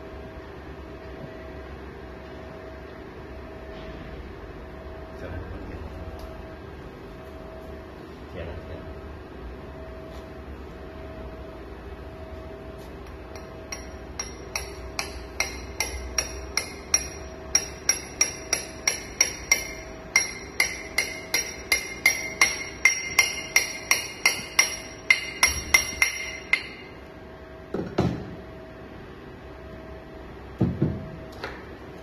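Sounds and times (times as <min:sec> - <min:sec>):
metal-on-metal tapping with ring: 0:13.3 - 0:27.0.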